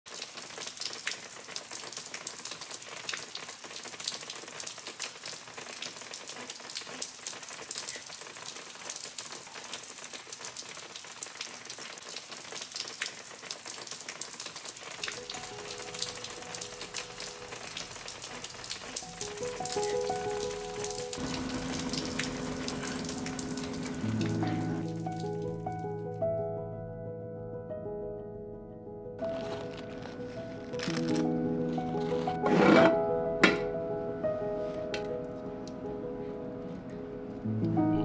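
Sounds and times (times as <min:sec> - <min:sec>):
steady rain falling: 0:00.1 - 0:25.8, 0:29.2 - 0:32.4
soft music with held notes: 0:15.1 - 0:18.0, 0:19.0 - 0:38.0.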